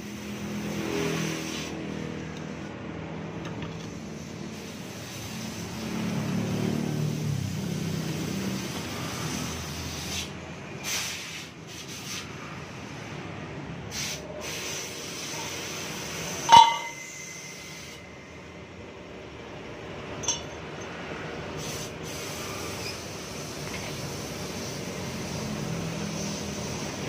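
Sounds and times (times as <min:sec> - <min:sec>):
metal scraping: 0:16.3 - 0:18.1
sharp ringing metallic clink: 0:16.4 - 0:17.8, 0:20.2 - 0:21.0.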